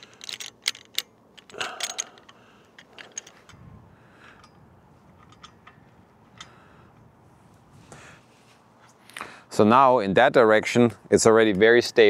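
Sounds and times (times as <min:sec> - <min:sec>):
metallic clicks and ticks: 0:00.0 - 0:03.6, 0:04.3 - 0:07.1.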